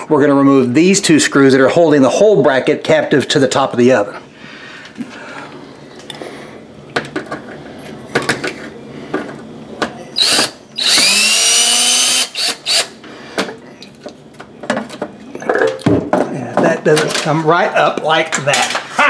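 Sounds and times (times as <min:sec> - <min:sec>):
cordless drill whirring: 0:10.2 - 0:12.9.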